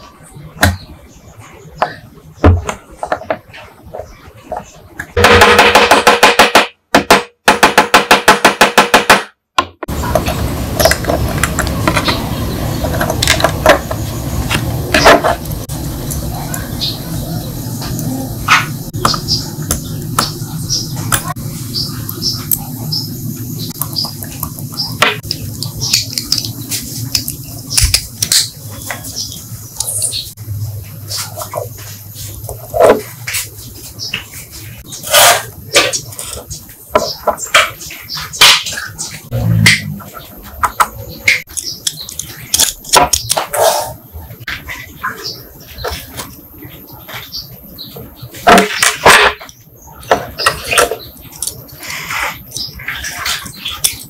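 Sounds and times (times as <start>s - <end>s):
steady low hum: 9.8s - 36.9s.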